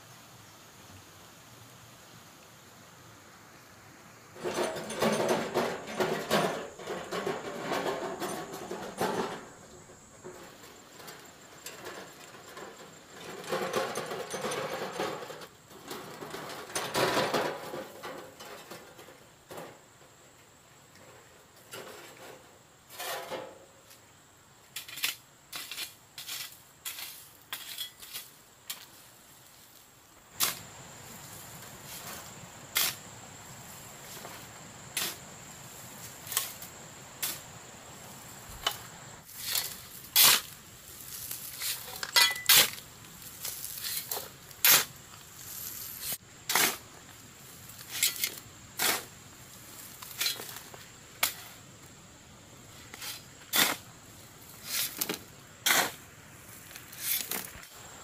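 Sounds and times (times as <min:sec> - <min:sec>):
faint steady hiss: 0:00.0 - 0:58.0
stones and tools clinking: 0:04.4 - 0:09.6, 0:10.3 - 0:19.7, 0:27.5 - 0:28.8, 0:41.2 - 0:42.8.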